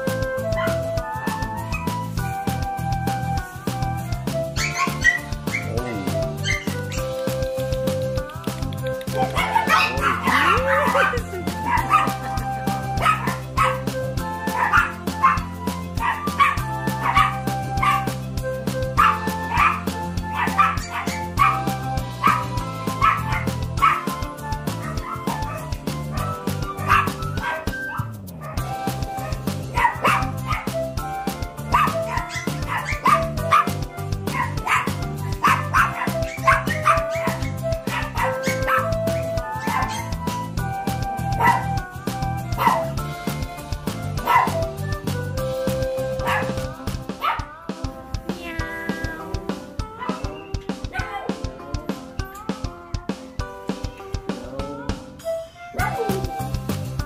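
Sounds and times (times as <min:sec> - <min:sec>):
background music with beat: 0:00.0 - 0:57.0
small dogs barking: 0:04.6 - 0:07.0, 0:09.1 - 0:12.3, 0:13.0 - 0:18.1, 0:19.0 - 0:24.1, 0:24.8 - 0:28.6, 0:29.2 - 0:30.8, 0:31.7 - 0:40.2, 0:41.4 - 0:41.7, 0:42.6 - 0:42.9, 0:44.2 - 0:44.7, 0:46.2 - 0:47.5, 0:49.9 - 0:51.3, 0:55.8 - 0:56.3.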